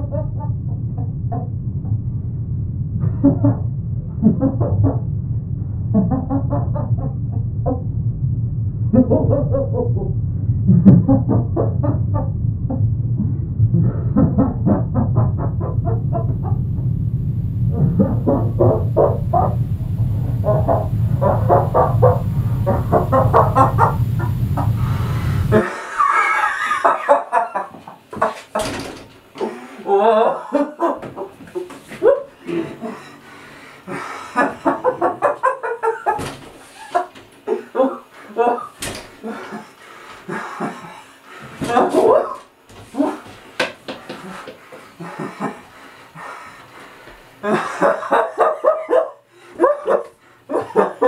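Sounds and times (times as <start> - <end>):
low hum: 0.0 - 27.4, 28.5 - 43.3
clucking-like sounds: 20.4 - 24.7
breathy vocal sounds: 24.0 - 25.8, 37.5 - 41.7.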